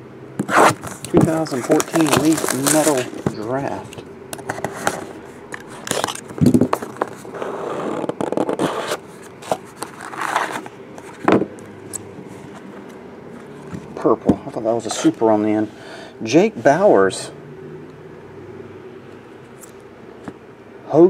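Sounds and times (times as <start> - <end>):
cardboard box scraping: 0.4 - 3.3, 4.5 - 10.7
plastic wrapping crackling: 0.5 - 4.0.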